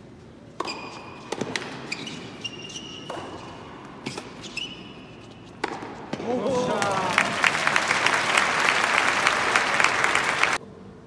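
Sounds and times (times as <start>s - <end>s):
shoes squeaking: 0.2s - 6.3s
tennis ball struck by rackets: 0.6s - 6.4s
tennis ball bouncing on court: 0.6s - 7.0s.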